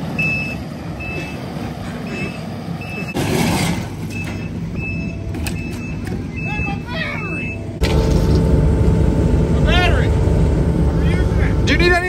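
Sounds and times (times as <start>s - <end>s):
diesel engine running: 0.0s - 12.0s
backup alarm beeping: 0.1s - 3.2s, 4.1s - 9.6s
loud rush of noise: 6.4s - 12.0s.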